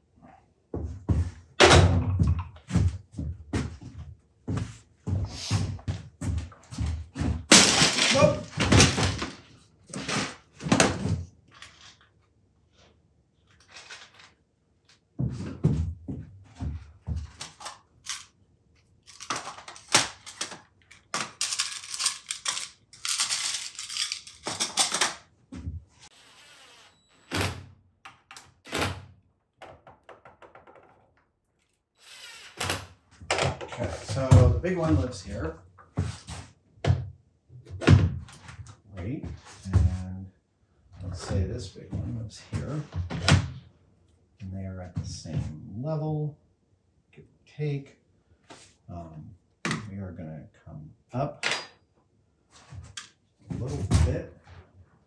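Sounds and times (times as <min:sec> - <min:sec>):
metal tools clattering: 0:21.2 - 0:25.2.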